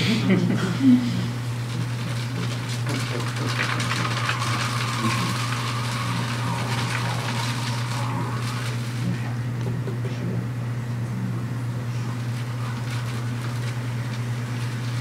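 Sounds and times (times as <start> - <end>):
potter's wheel humming: 0.0 - 15.0
loop tool scraping clay: 1.7 - 9.1.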